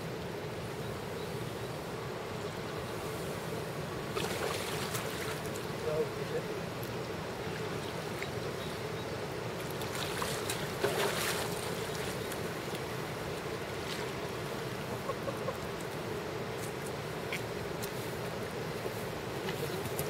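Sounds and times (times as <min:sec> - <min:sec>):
rushing water: 0:00.0 - 0:20.0
wind: 0:00.0 - 0:20.0
splashing in shallow water: 0:04.1 - 0:05.8, 0:09.6 - 0:15.9.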